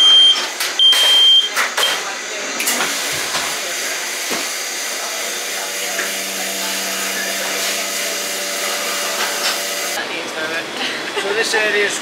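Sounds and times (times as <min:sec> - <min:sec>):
vacuum forming machine rushing: 0:02.8 - 0:10.0.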